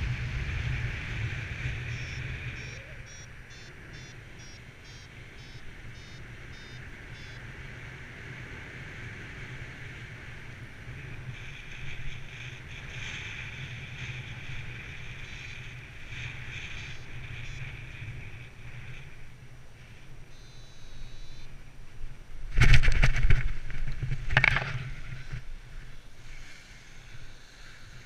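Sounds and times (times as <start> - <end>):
wind rushing over microphone: 0.0 - 20.2, 21.5 - 26.2
high electronic beeps: 1.9 - 7.4, 20.3 - 21.5.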